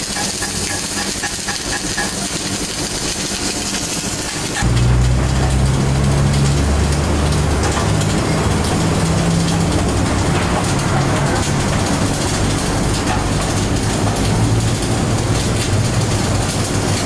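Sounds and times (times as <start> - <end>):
welding arc crackling: 0.0 - 17.0
low machine hum: 3.5 - 17.0.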